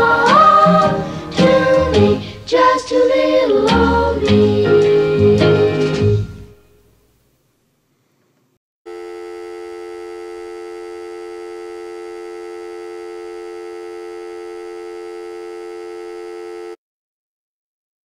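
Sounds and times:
electronic test tone: 8.9 - 16.8.

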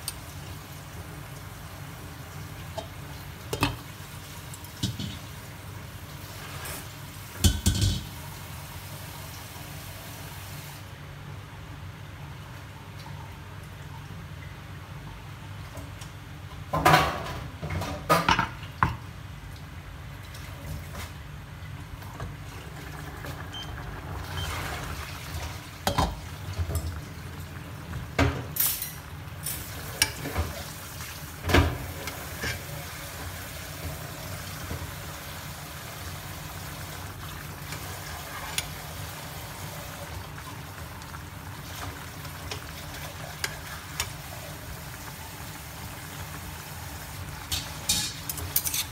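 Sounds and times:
soup bubbling in a pot: 19.4 - 48.6.

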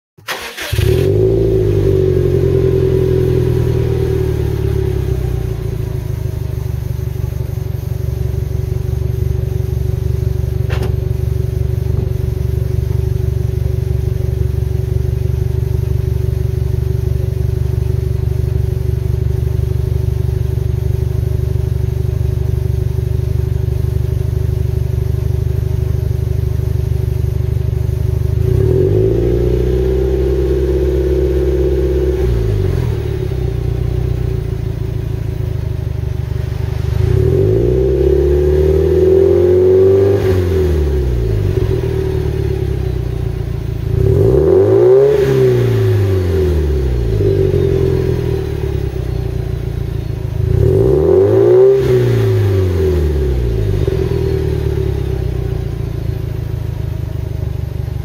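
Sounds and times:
car engine idling: 0.2 - 58.0.

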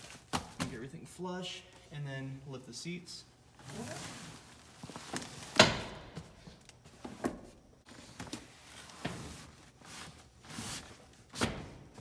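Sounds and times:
nylon liner rustling: 3.6 - 5.6.

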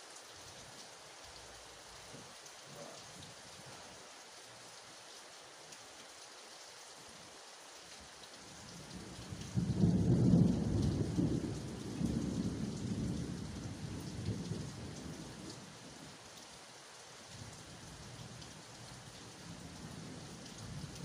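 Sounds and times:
steady rain: 0.0 - 21.0
thunder rumbling: 9.4 - 15.4.

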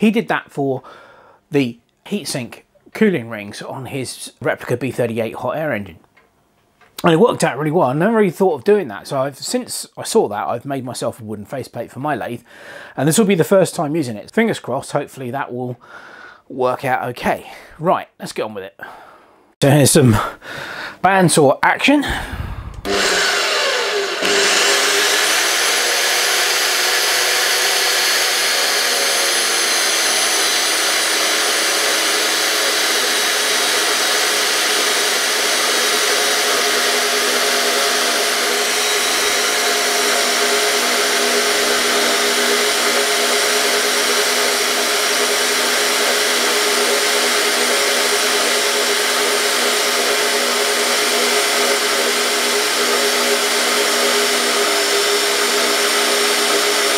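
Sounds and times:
bandsaw cutting metal: 22.8 - 56.9.

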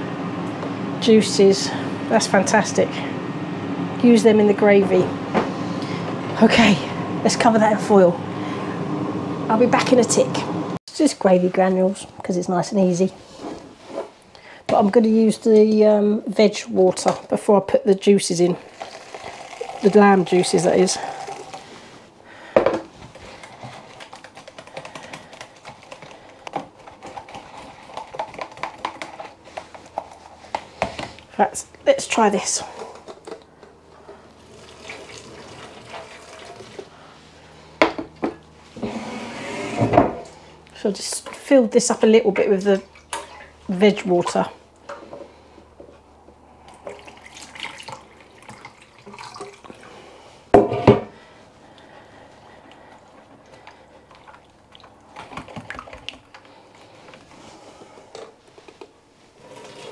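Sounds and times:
granules pouring into plastic jug: 18.6 - 21.8
liquid pouring into a jug: 18.6 - 21.8, 34.4 - 36.9, 46.7 - 50.1.

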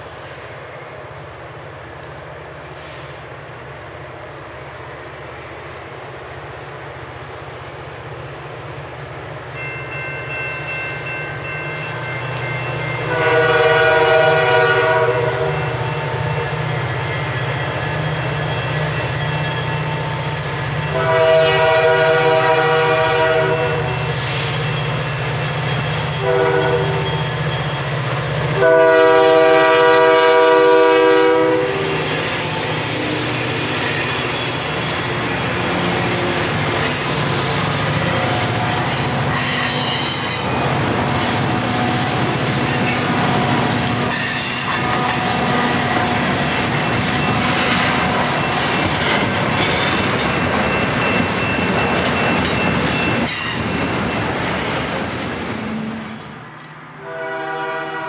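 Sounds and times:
train wheels on rails: 0.0 - 58.0
train horn: 12.8 - 16.4, 20.8 - 24.1, 26.2 - 27.2, 28.5 - 34.2, 43.9 - 46.2, 57.0 - 58.0.

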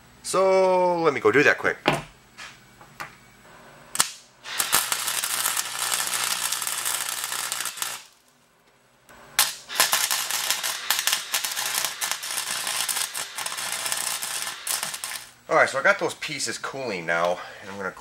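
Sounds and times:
arc welding crackling: 3.9 - 8.5, 9.1 - 16.4.

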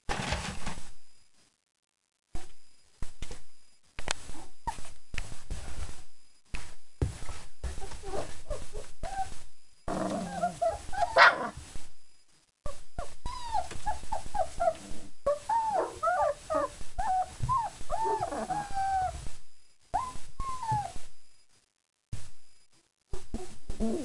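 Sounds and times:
puppies whining: 7.8 - 11.6, 12.7 - 19.3, 19.9 - 21.0.

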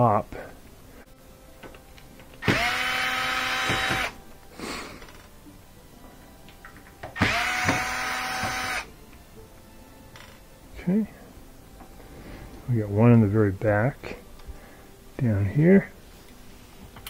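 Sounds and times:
cordless drill whining: 2.4 - 4.2, 7.2 - 8.9.

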